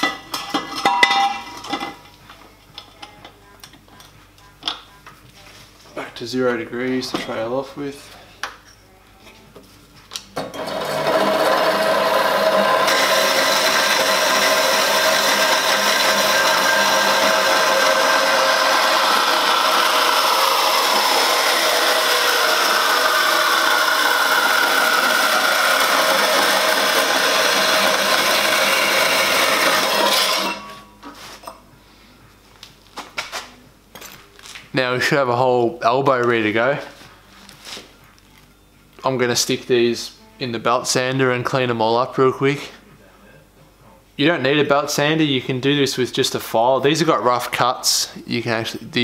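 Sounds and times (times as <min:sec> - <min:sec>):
bandsaw cutting metal tube: 0:10.4 - 0:30.9.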